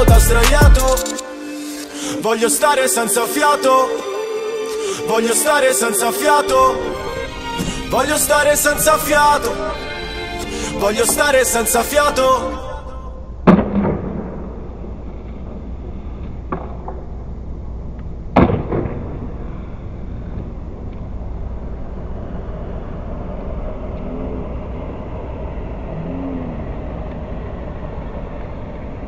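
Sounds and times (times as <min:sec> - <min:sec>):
skateboard wheels rolling: 0:13.5 - 0:26.0, 0:26.6 - 0:29.0.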